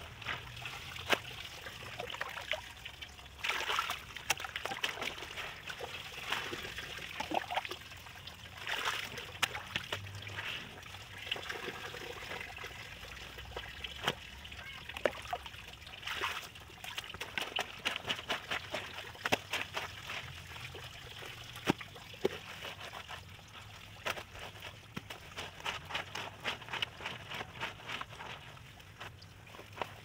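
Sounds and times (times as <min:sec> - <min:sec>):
wet clothes scrubbed by hand: 0:16.1 - 0:30.0.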